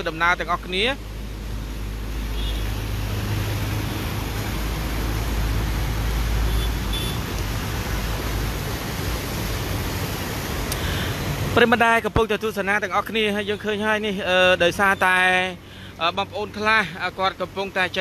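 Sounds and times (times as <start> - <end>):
floodwater rushing: 0.0 - 18.0
road traffic: 0.0 - 18.0.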